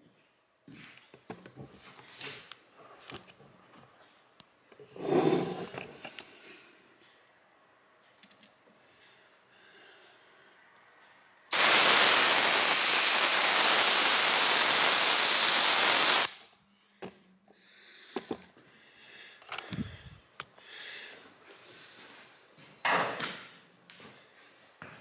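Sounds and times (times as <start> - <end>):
gas hissing from valve: 11.5 - 16.5.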